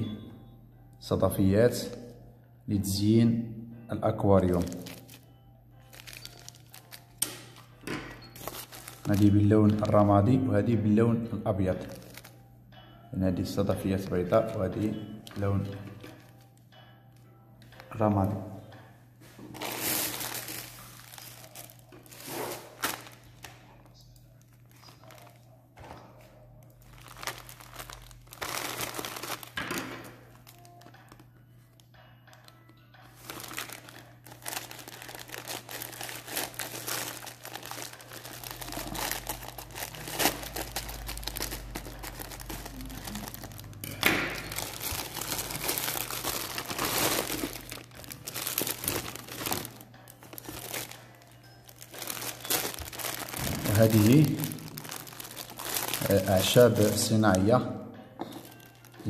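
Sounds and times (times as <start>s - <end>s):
plastic packaging crinkling: 4.4s - 10.1s, 11.8s - 12.4s, 19.6s - 25.6s, 26.6s - 31.3s, 33.1s - 57.5s, 58.2s - 59.0s.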